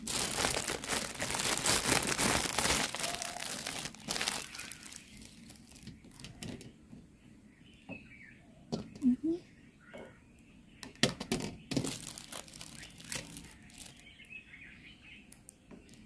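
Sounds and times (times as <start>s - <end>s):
packaging crinkling and rustling: 0.0s - 6.7s, 11.3s - 14.4s.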